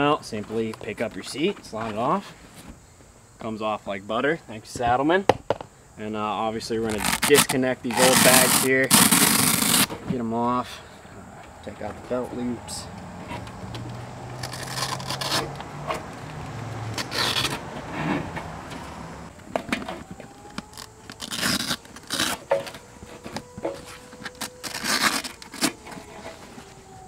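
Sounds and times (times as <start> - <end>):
fabric straps and buckles scraping: 6.8 - 10.0, 13.2 - 19.4, 20.0 - 27.0.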